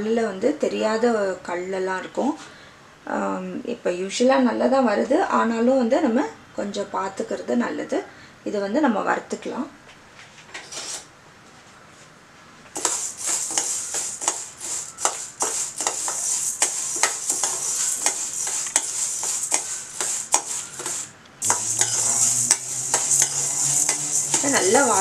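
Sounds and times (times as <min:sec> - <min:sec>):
seeds rattling in metal pan: 0:12.8 - 0:25.0.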